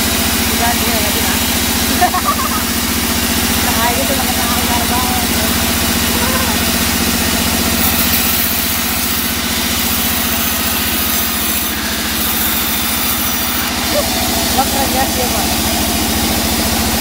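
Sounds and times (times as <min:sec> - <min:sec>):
saw machinery running: 0:00.0 - 0:17.0
saw blade hissing through wood: 0:04.3 - 0:14.8.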